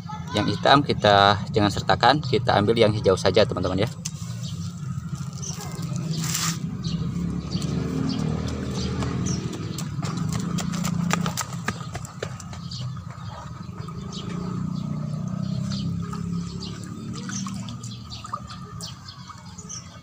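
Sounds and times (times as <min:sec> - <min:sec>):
small drips: 0:15.2 - 0:19.5
liquid sloshing in bucket: 0:16.0 - 0:19.5.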